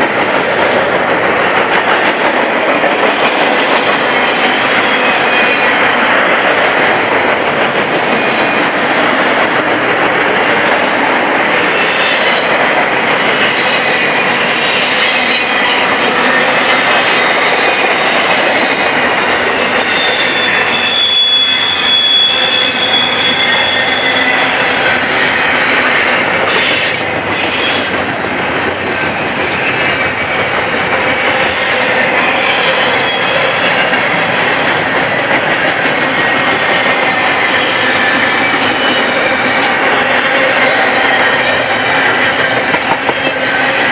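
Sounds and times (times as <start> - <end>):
train wheels clattering on rails: 0.0 - 43.9
high wheel squeals: 9.5 - 12.5, 19.5 - 27.9.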